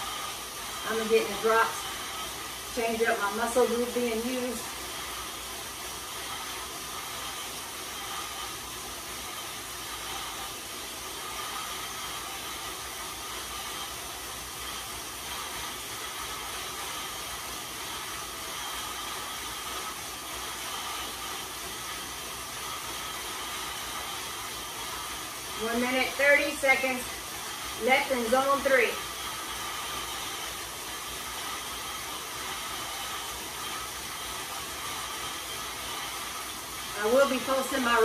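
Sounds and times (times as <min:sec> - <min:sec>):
bike tyres whirring on rollers: 0:00.0 - 0:38.0.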